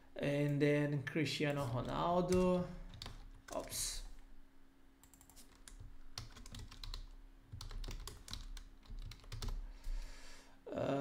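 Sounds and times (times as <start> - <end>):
faint steady hum: 0.0 - 11.0
typing on computer keyboard: 2.3 - 3.6, 5.0 - 9.6.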